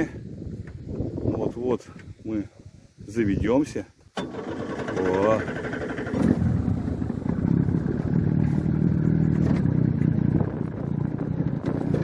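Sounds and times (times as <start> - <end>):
motorboat engine running: 4.2 - 12.0.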